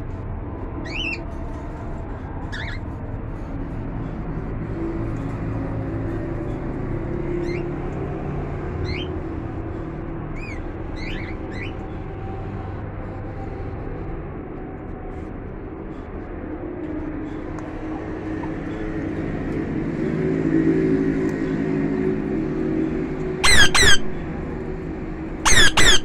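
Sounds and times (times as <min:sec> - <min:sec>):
parakeet squawking harshly: 0:02.5 - 0:02.8, 0:23.4 - 0:24.2, 0:25.4 - 0:26.0.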